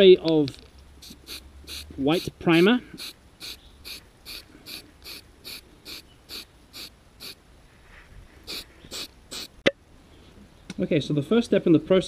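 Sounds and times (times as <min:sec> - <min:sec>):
aerosol can hissing in puffs: 0:01.0 - 0:07.4, 0:08.4 - 0:09.6.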